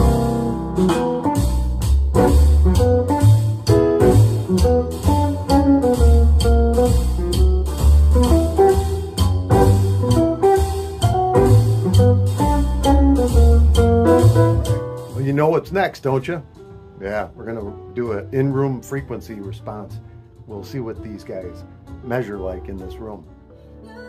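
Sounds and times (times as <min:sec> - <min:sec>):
guitar instrumental over loudspeakers: 0:00.0 - 0:15.2.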